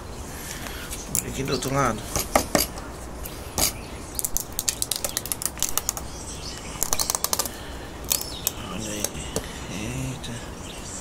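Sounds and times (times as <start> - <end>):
wooden hive box clicking and tapping: 3.6 - 6.1, 6.8 - 9.5.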